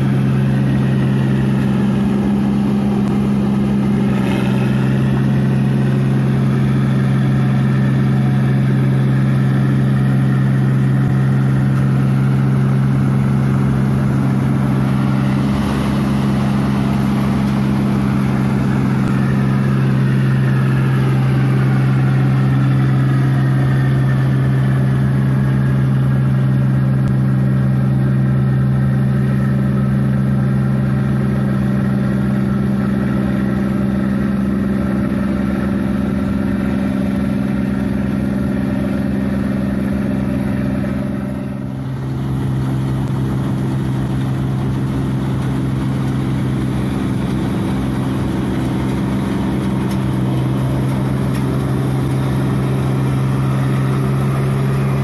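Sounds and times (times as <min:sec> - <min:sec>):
combine harvester engine humming: 0:00.0 - 0:55.0.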